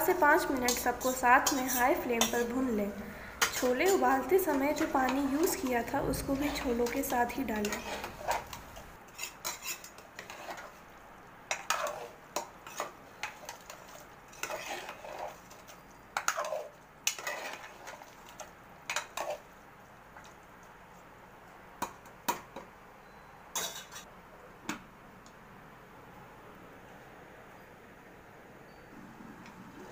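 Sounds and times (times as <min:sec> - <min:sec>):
ladle scraping metal pot: 0:00.1 - 0:10.8, 0:11.5 - 0:18.2, 0:18.9 - 0:19.4, 0:23.6 - 0:24.0.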